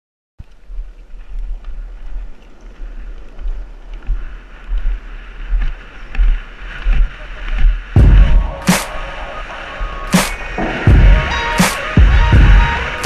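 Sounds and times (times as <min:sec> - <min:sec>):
longboard wheels rolling on asphalt: 0:00.4 - 0:13.0
wind buffeting microphone: 0:00.4 - 0:13.0
loud low burst: 0:10.1 - 0:13.0.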